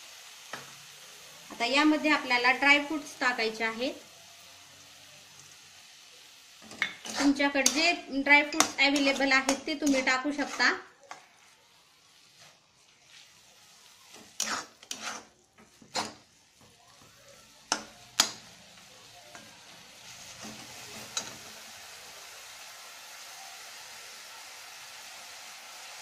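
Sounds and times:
food sizzling: 0.0 - 26.0
metal spatula scraping pan: 6.6 - 11.5, 12.1 - 16.7, 19.3 - 21.5.

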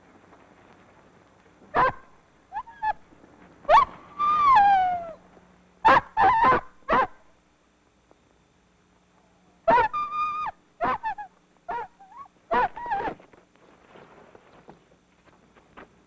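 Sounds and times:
dog barking: 1.7 - 3.0, 5.8 - 7.2, 9.7 - 10.0, 10.8 - 13.1
dog whining: 1.8 - 3.0, 3.7 - 5.2, 5.9 - 7.2, 9.7 - 13.2.

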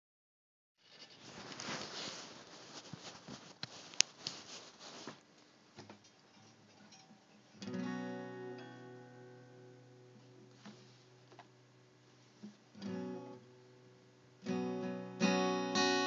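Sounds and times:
rustling handling noise: 0.8 - 7.5
guitar chord strummed: 7.6 - 10.5, 12.7 - 16.0.

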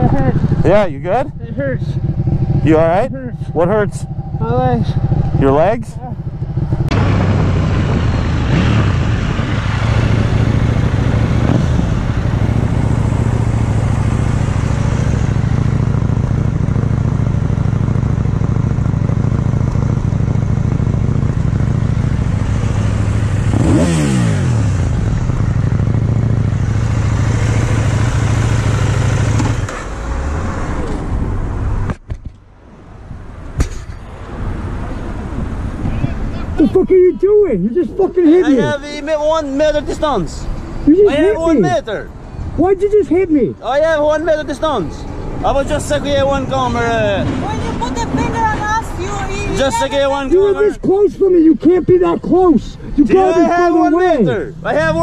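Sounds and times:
motorcycle engine running: 0.0 - 30.4
wind rushing over microphone: 6.5 - 15.5, 34.4 - 36.6
sharp knock: 33.6 - 34.0.

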